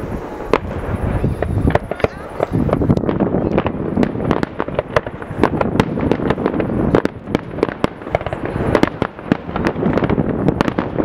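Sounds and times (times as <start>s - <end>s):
continuous rumble: 0.0s - 11.0s
fireworks bangs: 0.0s - 11.0s.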